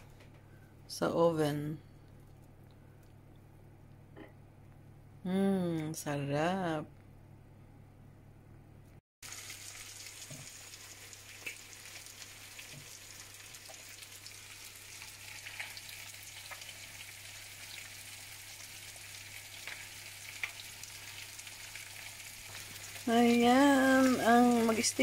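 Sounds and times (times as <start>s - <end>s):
food sizzling in oil: 9.2s - 25.0s.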